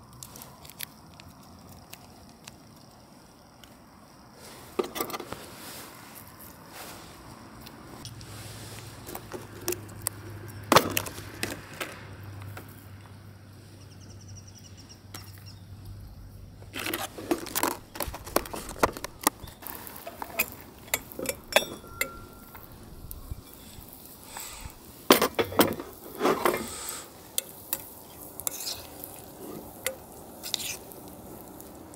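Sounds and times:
cookware and utensils clinking: 0:20.0 - 0:22.7.

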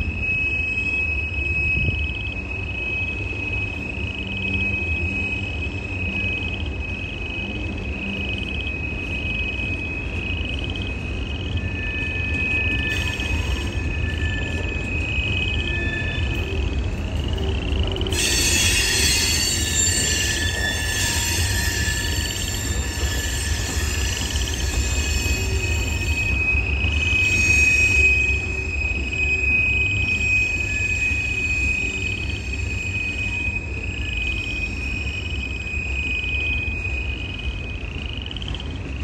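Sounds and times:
freight train wheels rumbling: 0:00.0 - 0:39.0
wheel squeal chirping: 0:00.0 - 0:39.0
harsh hissing screech: 0:17.5 - 0:37.1.

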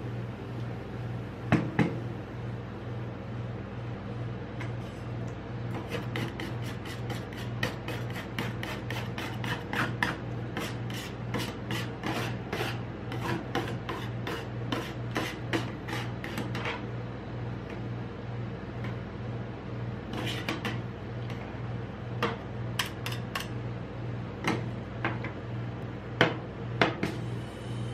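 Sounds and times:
steady low hum: 0:00.0 - 0:27.9
metal spatulas scraping cold plate: 0:05.8 - 0:16.8, 0:20.1 - 0:20.8.

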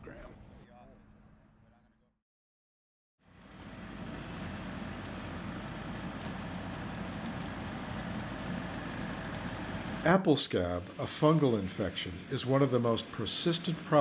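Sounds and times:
tractor engine running: 0:03.3 - 0:10.1.

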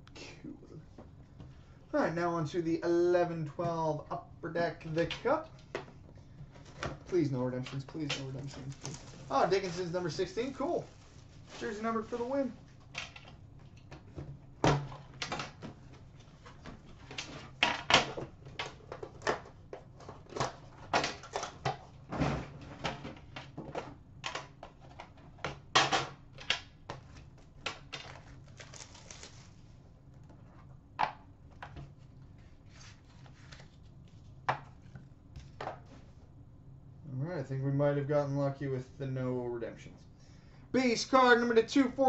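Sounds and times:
cardboard box being unwrapped: 0:28.0 - 0:29.7.

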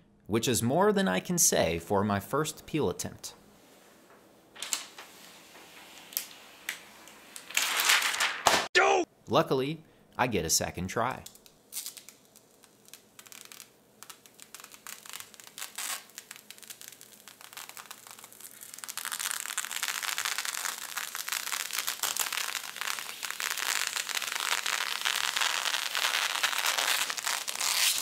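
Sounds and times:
plastic film peeling off crackling: 0:04.6 - 0:08.6, 0:11.2 - 0:28.0.

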